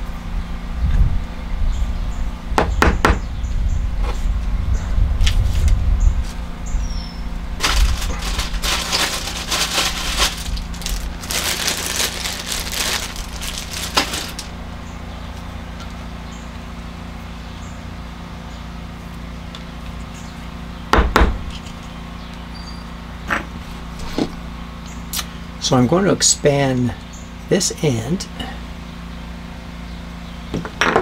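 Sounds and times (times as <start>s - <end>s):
steady low hum: 0.0s - 31.0s
rustling and scraping of objects: 5.2s - 6.6s, 7.6s - 14.6s, 23.4s - 24.4s.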